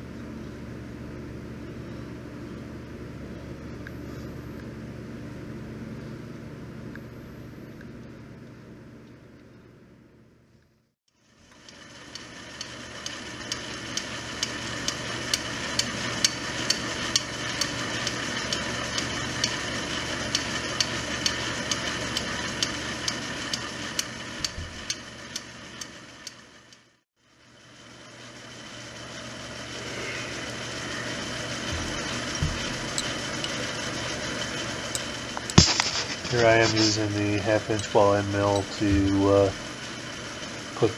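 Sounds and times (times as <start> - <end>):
metal lathe running: 11.4 - 26.8, 27.4 - 40.9.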